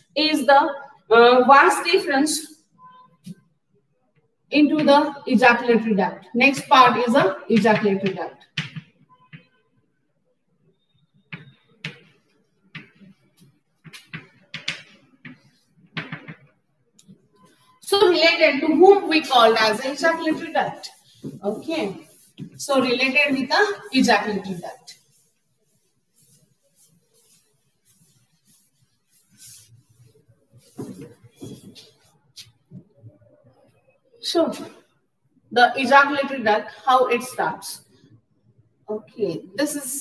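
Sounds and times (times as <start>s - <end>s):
chalk tapping and scratching on blackboard: 6.4s - 9.6s, 11.2s - 32.9s.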